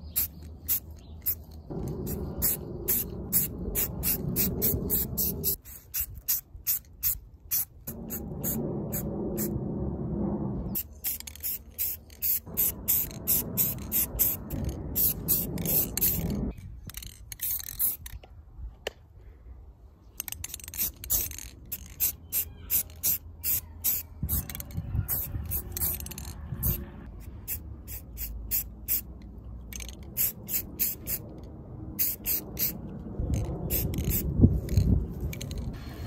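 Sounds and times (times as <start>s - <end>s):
spray paint can hissing: 0.0s - 9.5s, 10.8s - 18.2s, 20.2s - 31.2s, 32.0s - 32.8s, 33.4s - 36.0s.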